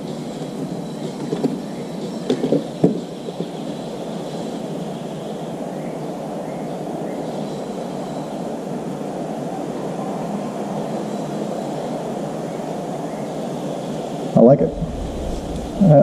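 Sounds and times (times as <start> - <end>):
steady rushing noise: 12.0 - 16.0.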